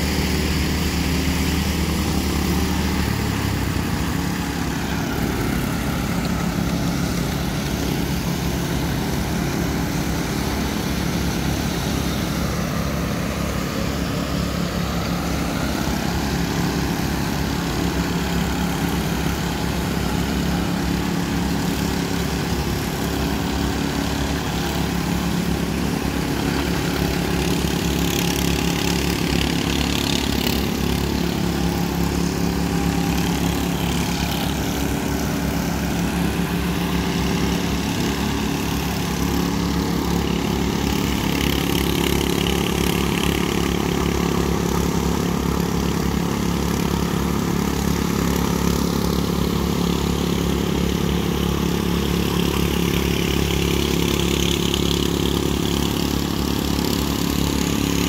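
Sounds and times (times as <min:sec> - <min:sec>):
power trowel engines droning: 0:00.0 - 0:58.0.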